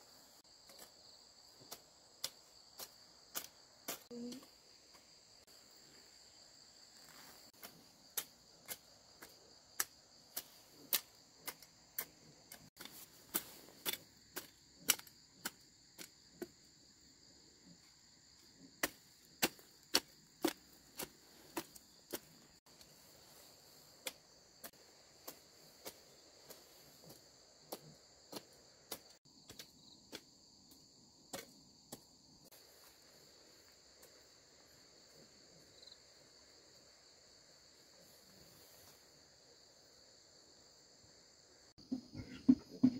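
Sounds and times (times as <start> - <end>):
high-pitched insect chorus: 0.0 - 42.9
hoe chopping into dry soil: 18.6 - 22.6.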